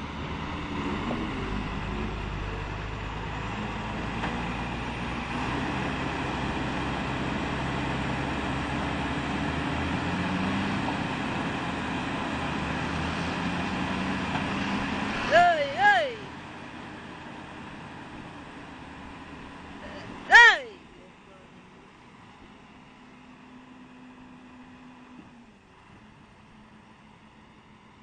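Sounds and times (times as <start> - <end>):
truck diesel engine running: 0.0 - 27.8.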